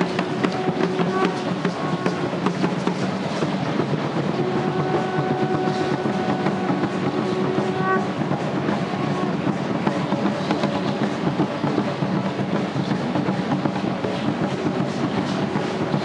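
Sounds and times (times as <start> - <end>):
long steady note: 0.0 - 2.5, 4.3 - 9.6.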